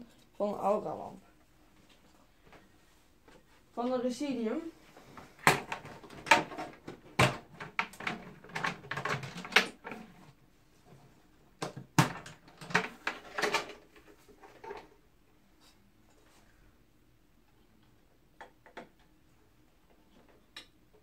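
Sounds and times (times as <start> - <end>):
plastic and metal clicks and knocks: 5.4 - 10.0.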